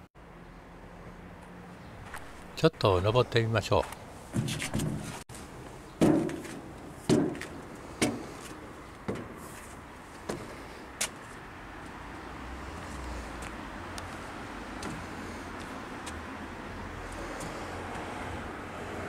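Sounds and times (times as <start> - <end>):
footsteps on steel stairs: 4.3 - 5.2, 6.0 - 11.2.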